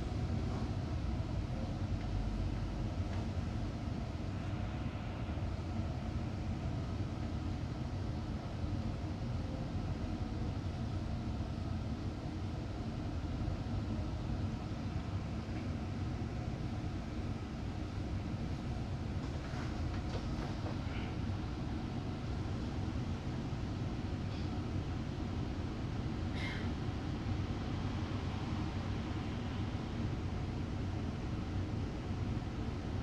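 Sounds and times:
bus diesel engine drone: 0.0s - 33.0s.

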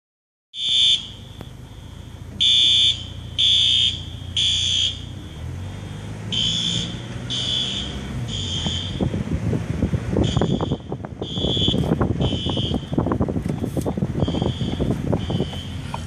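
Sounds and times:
fire alarm horn beeping: 0.5s - 1.4s, 2.4s - 5.2s, 6.3s - 9.1s, 10.2s - 12.9s, 14.2s - 15.8s
passing car rumble: 1.6s - 16.0s.

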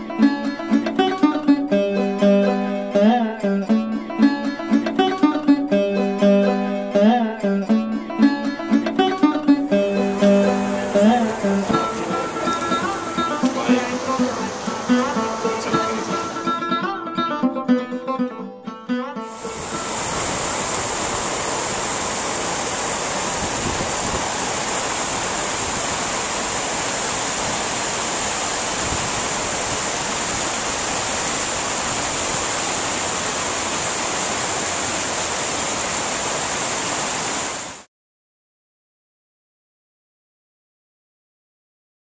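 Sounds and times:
river water rushing over rocks: 9.9s - 16.7s, 19.3s - 37.9s.

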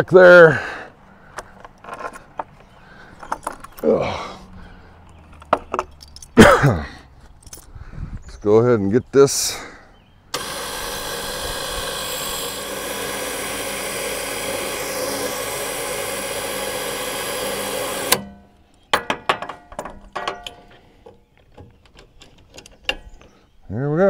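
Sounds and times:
electric winch running: 10.3s - 18.2s.

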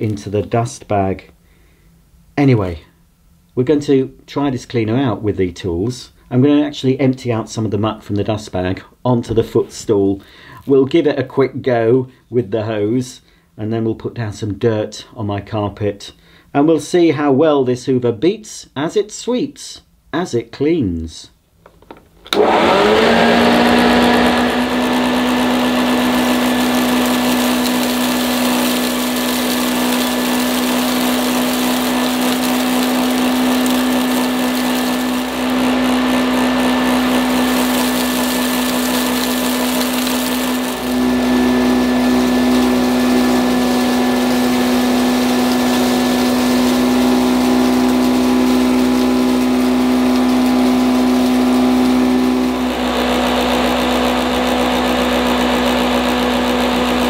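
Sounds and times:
upright vacuum cleaner running: 22.3s - 57.0s.

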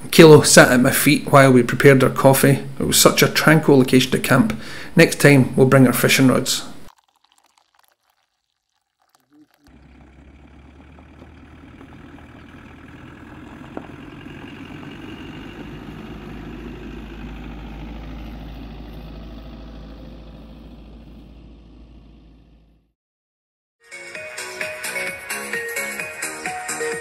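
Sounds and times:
engine running low hum: 9.7s - 22.9s.

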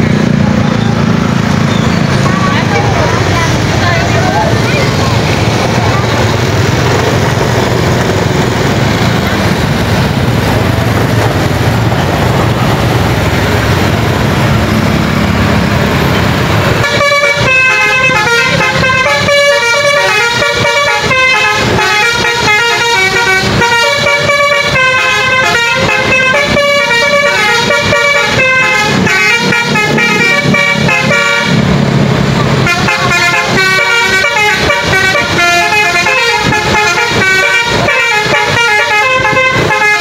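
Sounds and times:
engine and traffic noise: 0.0s - 40.0s
bus horn playing melody: 16.4s - 31.8s, 32.4s - 40.0s.

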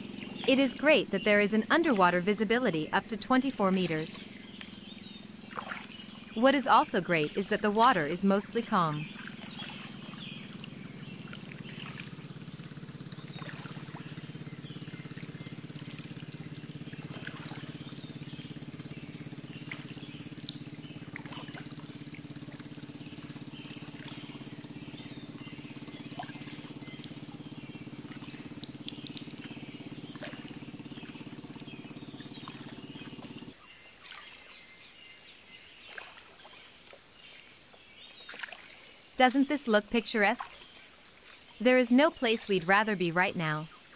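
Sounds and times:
low steady hum: 0.0s - 33.6s
water lapping and splashing: 0.0s - 43.9s.

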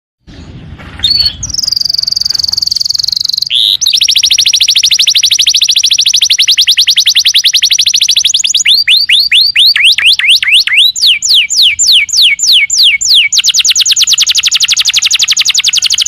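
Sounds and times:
faint low rumble: 0.2s - 3.5s
canary singing trills: 1.0s - 16.0s.

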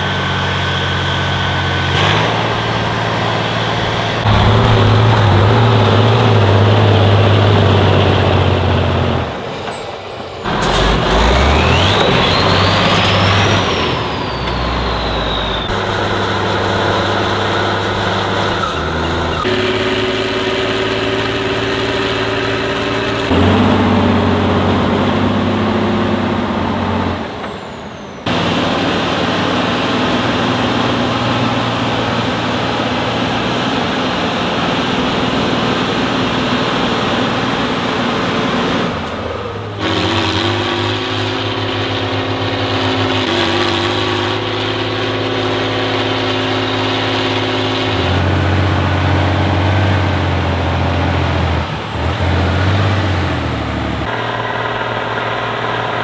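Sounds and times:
diesel truck engines revving: 0.0s - 56.0s
thin high whistles: 11.6s - 15.8s.

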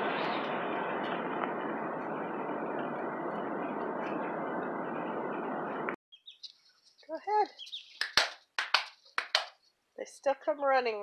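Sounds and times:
jet airliner cabin noise: 0.0s - 6.0s.

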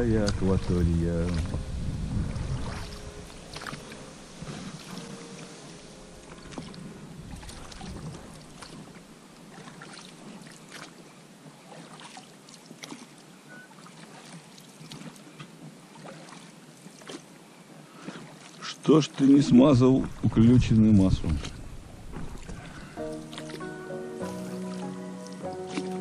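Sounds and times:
wind rumble on microphone: 0.0s - 5.2s, 6.2s - 9.0s, 19.9s - 23.0s
oar knocks and splashes: 0.0s - 5.5s, 6.2s - 17.3s, 18.0s - 26.0s
oarlocks creaking: 21.0s - 23.4s.

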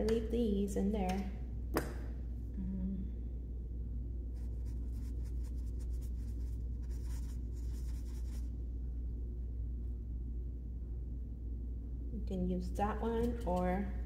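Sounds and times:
steady low hum: 0.0s - 14.0s
paintbrush scratchy strokes: 4.4s - 8.6s.

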